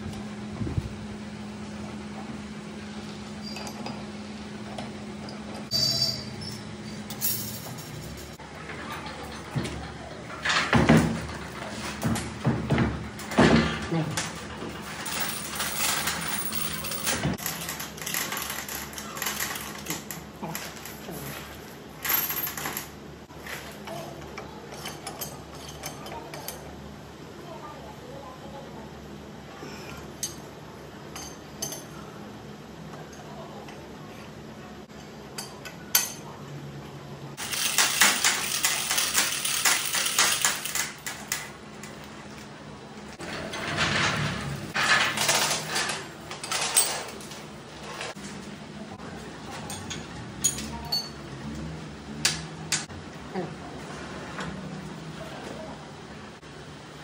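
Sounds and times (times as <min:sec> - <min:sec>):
chain hoist clinking and clicking: 0:14.7 - 0:20.2, 0:37.4 - 0:41.5.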